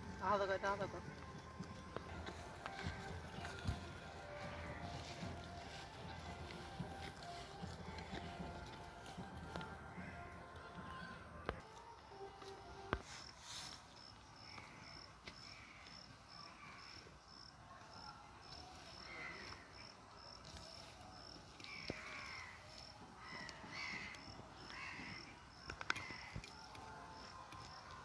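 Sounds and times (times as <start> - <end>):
birds calling: 0.2 - 11.2, 21.6 - 26.9
insect chirping: 12.1 - 28.0.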